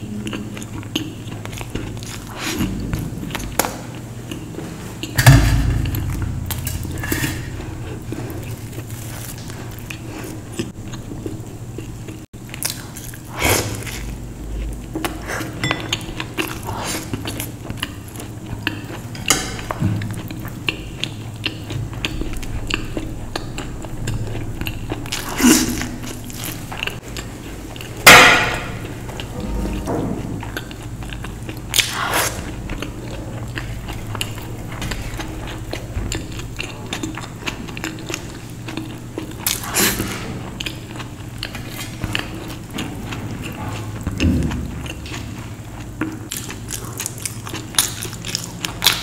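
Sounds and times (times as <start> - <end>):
chewing and biting: 0.1 - 5.6, 7.5 - 49.0
loud knock: 5.2 - 8.5
cutlery clinking on dishes: 15.6 - 16.1.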